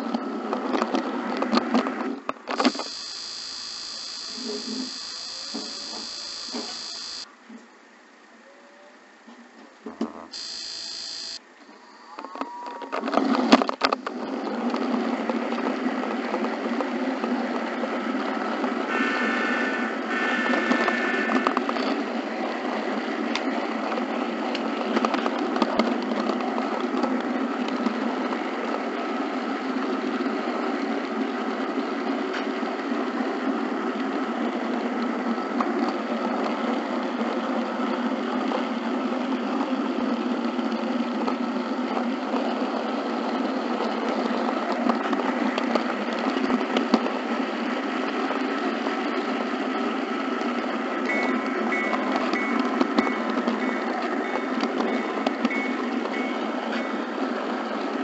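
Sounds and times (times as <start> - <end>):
model locomotive engine sound: 2.5 - 7.3, 10.4 - 11.4, 14.4 - 58.0
sharp clicks: 2.5 - 7.3, 10.4 - 11.4
short high beep: 2.6 - 7.3, 10.4 - 11.4, 51.1 - 53.9.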